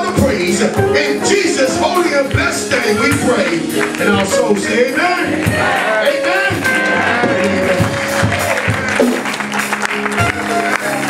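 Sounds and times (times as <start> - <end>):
church music with held chords: 0.0 - 11.0
hand clapping: 6.6 - 11.0.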